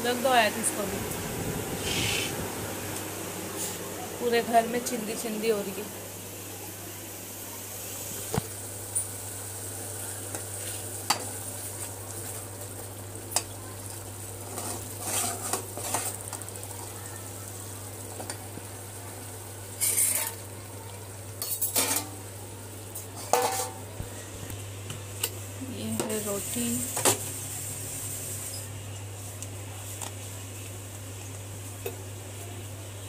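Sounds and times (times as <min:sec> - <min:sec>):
steady low hum: 0:00.0 - 0:10.2
spoon scraping a pot: 0:14.4 - 0:16.2, 0:19.8 - 0:20.4.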